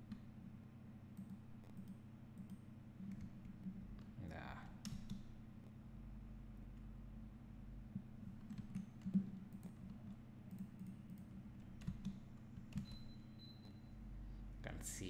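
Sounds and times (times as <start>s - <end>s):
steady low hum: 0.0s - 15.0s
keyboard keys clicking: 8.4s - 13.0s.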